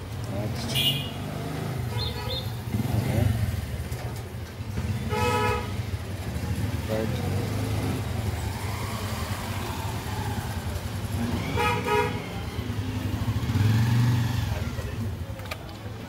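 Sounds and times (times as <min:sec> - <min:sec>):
road traffic: 0:00.0 - 0:16.0
vehicle horn honking: 0:00.8 - 0:01.2, 0:05.1 - 0:05.8, 0:11.6 - 0:12.2
vehicle passing: 0:06.1 - 0:15.0.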